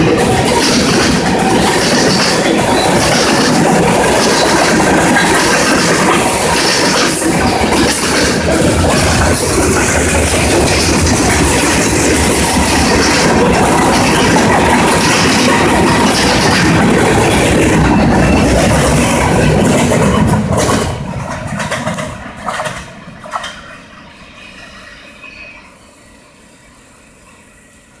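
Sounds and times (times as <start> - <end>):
train wheel clacks: 0.0 - 23.7
train wheels rumbling on rail: 0.0 - 28.0.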